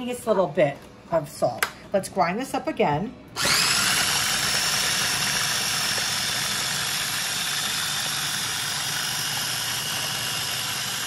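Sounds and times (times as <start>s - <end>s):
food processor motor whining: 3.4s - 11.0s.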